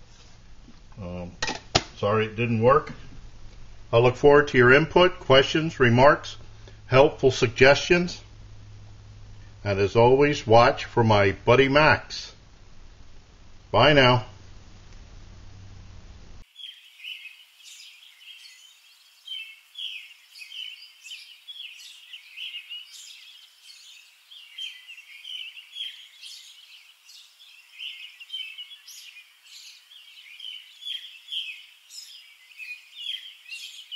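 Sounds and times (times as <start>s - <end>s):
small birds chirping: 16.4s - 33.9s.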